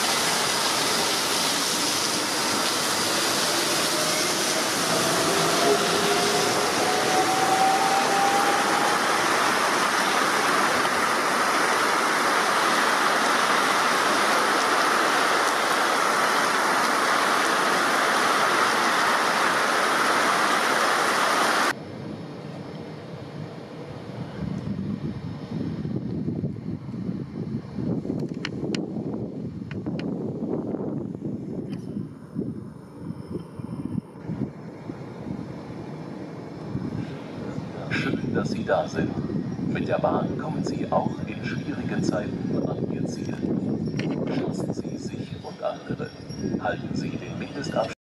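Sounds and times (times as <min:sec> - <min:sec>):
heavy rain pouring: 0:00.0 - 0:21.8
electric train accelerating whine: 0:00.0 - 0:47.9.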